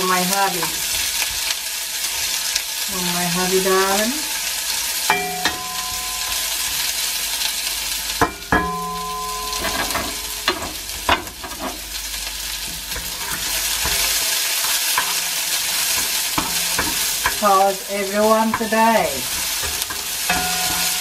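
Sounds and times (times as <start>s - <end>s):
onion rings sizzling in oil: 0.0s - 21.0s
tongs clicking against pan: 15.9s - 17.5s.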